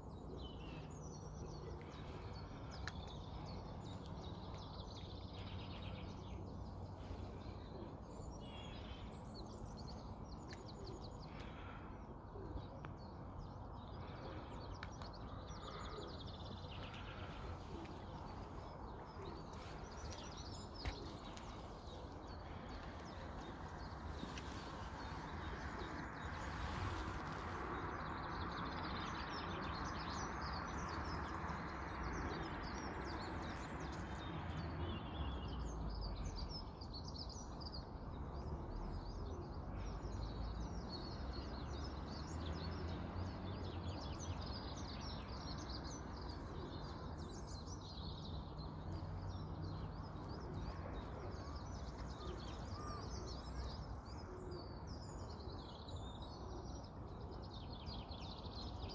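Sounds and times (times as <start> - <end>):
low outdoor background rumble: 0.0 - 42.4
songbirds singing and chirping: 0.0 - 58.9.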